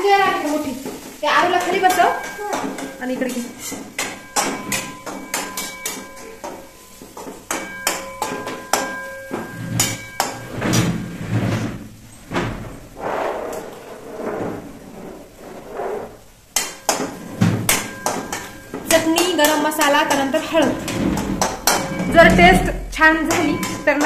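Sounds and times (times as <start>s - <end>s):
steel utensils clinking: 0.5s - 11.1s, 16.1s - 24.0s
rustling: 8.9s - 18.9s.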